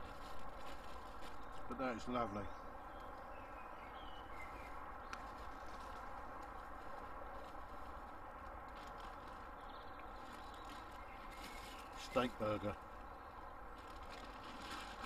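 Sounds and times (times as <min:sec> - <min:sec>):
faint bird chirps: 0:09.5 - 0:14.2.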